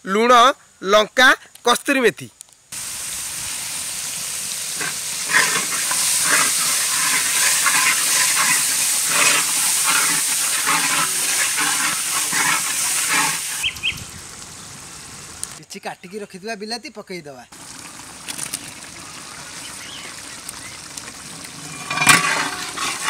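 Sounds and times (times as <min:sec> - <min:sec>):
food frying in hot oil: 0:02.8 - 0:15.6, 0:17.5 - 0:23.0
spatula scraping pan: 0:04.8 - 0:13.6, 0:21.5 - 0:23.0.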